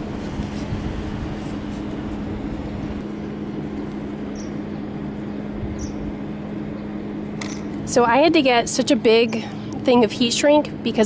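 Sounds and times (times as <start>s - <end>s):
machine hum: 0.0s - 11.0s.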